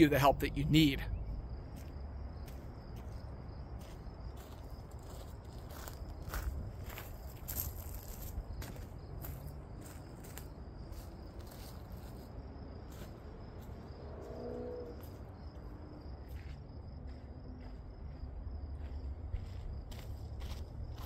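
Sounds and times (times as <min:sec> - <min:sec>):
insect trill: 0:00.0 - 0:21.0
footsteps on gravel: 0:01.8 - 0:13.8, 0:16.2 - 0:21.0.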